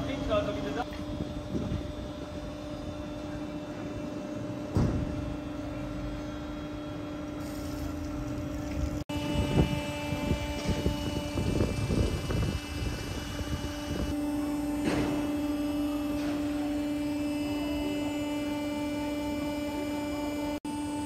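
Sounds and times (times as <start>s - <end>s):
thump: 4.7s - 5.1s, 14.8s - 15.3s
engine humming: 4.7s - 20.6s.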